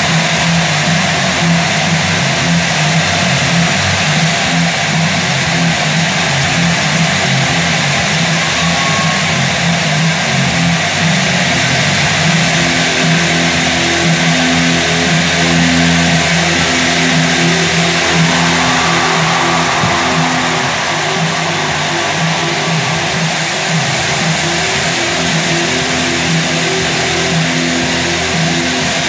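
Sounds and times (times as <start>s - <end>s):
stadium crowd cheering: 0.0s - 29.0s
marching band brass notes: 14.3s - 26.8s.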